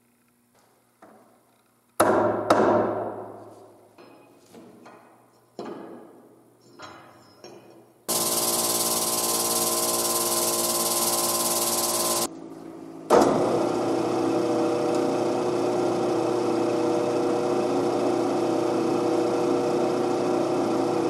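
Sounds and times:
electric machine humming: 0:08.1 - 0:12.3.

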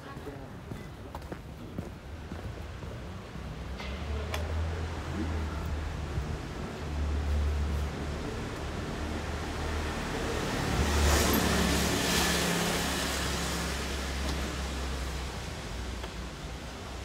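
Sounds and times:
street traffic rumble: 0:00.0 - 0:17.0
motor scooter passing: 0:07.5 - 0:15.0.

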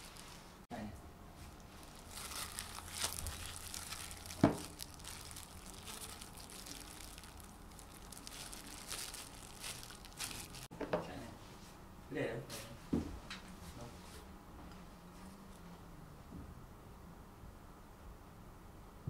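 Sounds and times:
plastic gloves crinkling: 0:00.0 - 0:00.6, 0:01.4 - 0:10.7.

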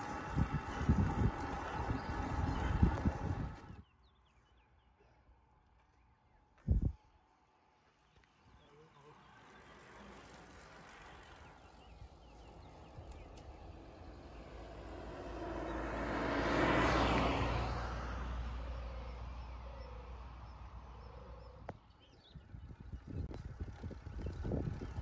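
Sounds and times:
small car driving past: 0:00.0 - 0:03.8, 0:08.5 - 0:21.7
faint wind: 0:00.0 - 0:25.0.

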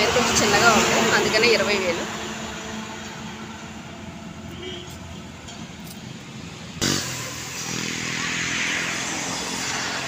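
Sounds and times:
vehicle engine passing by: 0:06.4 - 0:10.0.

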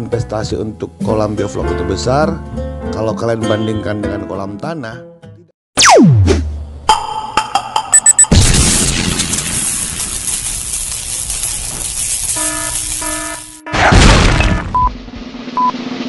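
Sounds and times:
short beep: 0:07.9 - 0:08.3
short electronic tones: 0:07.9 - 0:08.3
crash-like noise burst: 0:08.3 - 0:11.9, 0:13.7 - 0:15.5.

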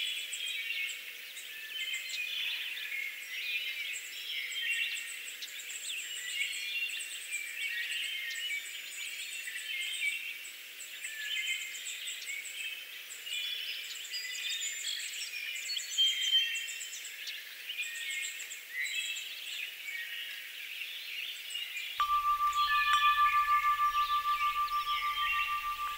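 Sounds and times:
songbirds chirping and singing: 0:22.0 - 0:25.9.

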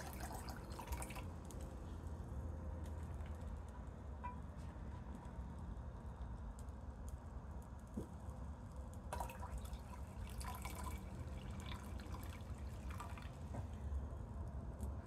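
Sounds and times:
liquid trickling into a glass beaker: 0:00.0 - 0:01.4, 0:09.1 - 0:13.8.

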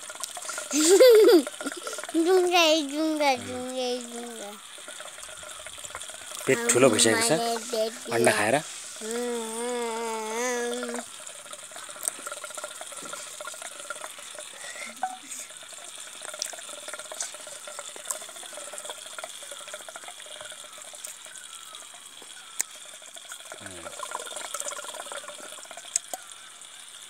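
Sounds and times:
child eating wet mouth sounds: 0:00.2 - 0:02.3, 0:03.3 - 0:04.2, 0:16.2 - 0:17.4.

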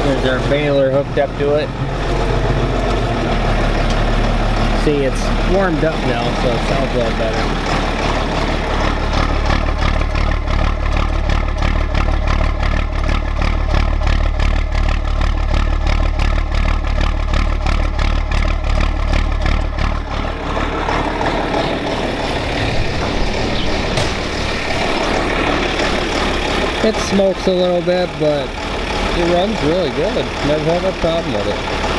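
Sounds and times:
diesel tractor engine idling: 0:00.0 - 0:31.9.

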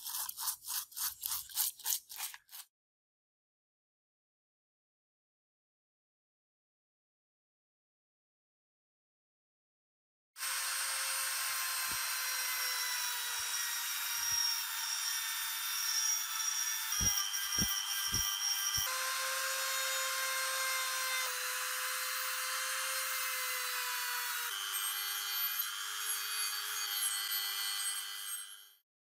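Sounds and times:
rotary tool grinding metal: 0:00.0 - 0:02.7, 0:10.4 - 0:28.8.

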